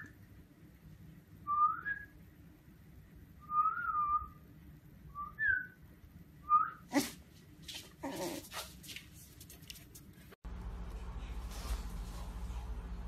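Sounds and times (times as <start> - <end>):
steady low hum: 9.3 - 13.0.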